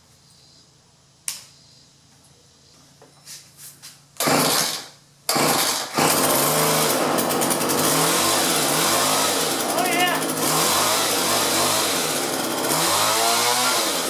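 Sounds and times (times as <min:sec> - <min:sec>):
small two-stroke engine running: 0:04.2 - 0:14.0.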